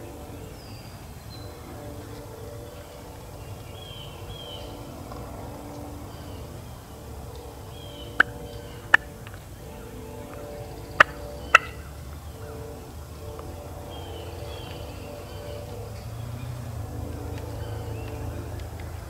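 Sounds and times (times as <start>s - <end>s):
turkey clucks: 10.6s - 11.9s.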